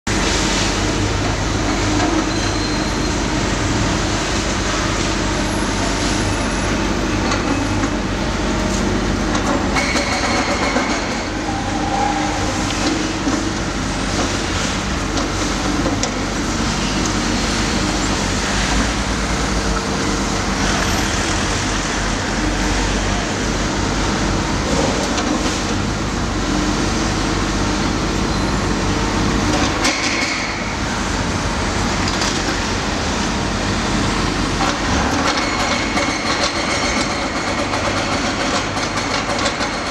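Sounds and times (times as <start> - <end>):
excavator diesel engine running: 0.1 - 39.9.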